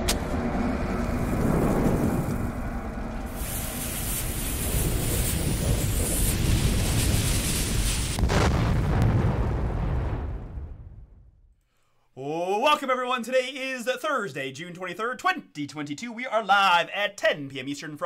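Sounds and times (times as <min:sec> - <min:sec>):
fire low rumble: 0:00.0 - 0:11.5
burning fuse hissing: 0:01.0 - 0:08.3.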